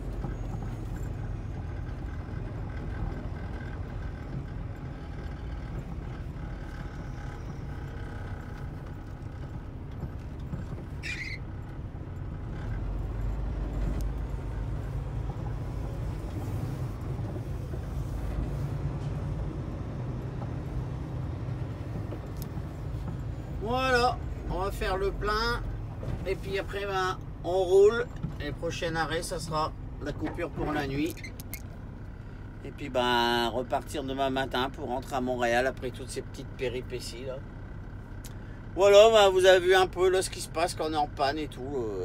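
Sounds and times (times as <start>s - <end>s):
diesel truck engine low rumble: 0.0s - 42.0s
short high squeak: 10.9s - 11.5s, 31.1s - 31.7s.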